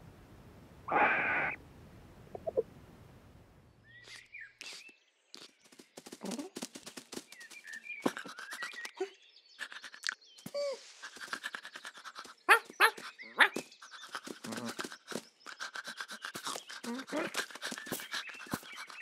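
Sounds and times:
cartoon dog panting: 8.0s - 19.0s.

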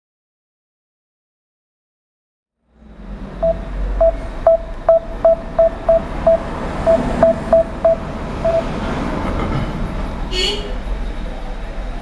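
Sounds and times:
short phone beeps: 3.4s - 8.7s.

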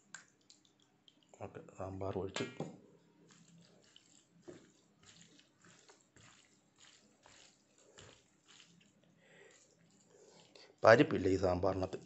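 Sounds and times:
hand squishing rice on plate: 3.2s - 10.6s.

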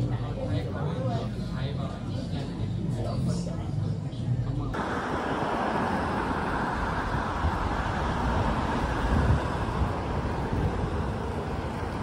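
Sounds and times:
street traffic: 0.0s - 12.0s
wind on microphone: 4.8s - 12.0s.

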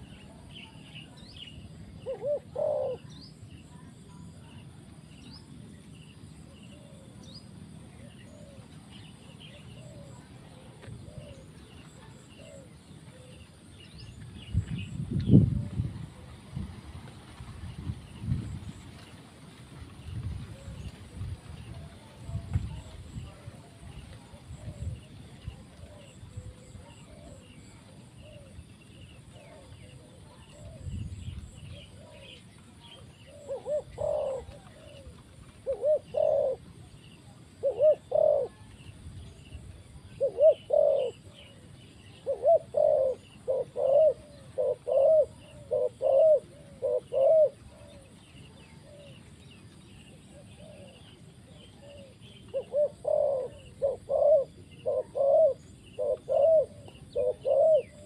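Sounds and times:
dove cooing: 0.0s - 4.6s, 6.5s - 13.7s, 20.1s - 49.4s, 50.2s - 58.0s
small birds chirping: 20.0s - 58.0s.

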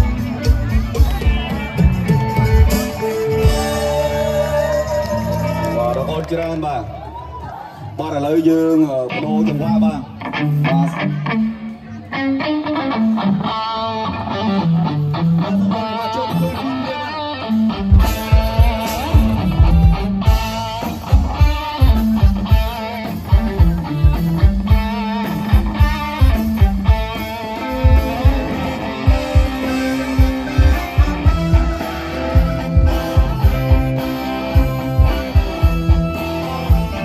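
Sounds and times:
bass line: 0.0s - 7.0s, 13.0s - 37.0s
electric guitar melody: 0.0s - 7.0s, 9.0s - 37.0s
drum beat: 17.9s - 37.0s.

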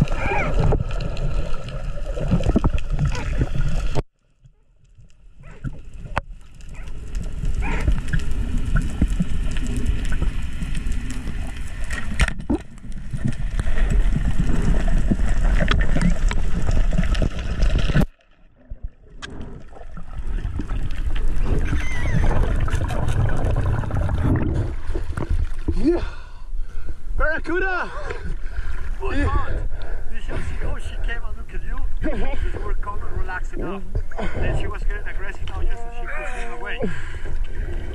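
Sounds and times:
underwater rush of water: 0.0s - 4.0s, 4.9s - 26.0s.

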